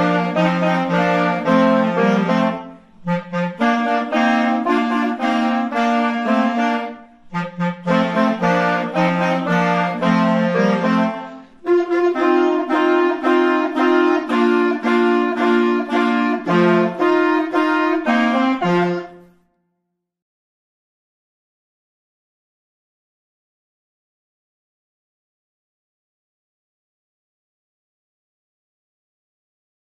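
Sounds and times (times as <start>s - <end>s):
clarinets and saxophones playing: 0.0s - 19.4s.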